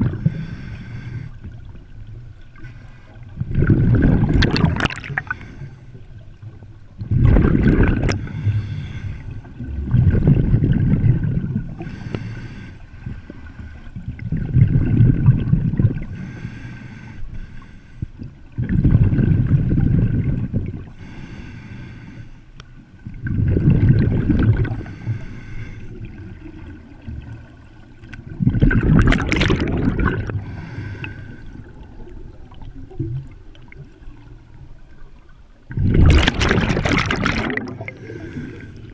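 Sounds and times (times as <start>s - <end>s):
exhaled bubbles burbling: 0.0s - 0.4s, 3.4s - 5.4s, 7.0s - 8.4s, 9.6s - 11.9s, 14.0s - 16.2s, 18.6s - 20.9s, 23.2s - 24.9s, 26.0s - 30.6s, 35.7s - 38.9s.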